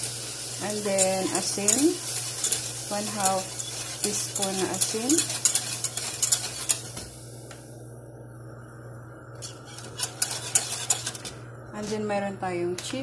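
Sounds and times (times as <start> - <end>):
whisk scraping a metal saucepan: 0.6 - 7.0, 9.4 - 12.1.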